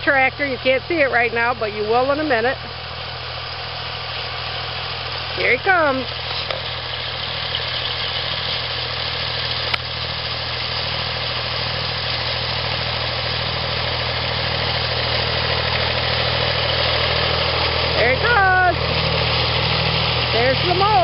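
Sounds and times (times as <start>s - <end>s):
diesel tractor engine running: 0.0s - 21.0s.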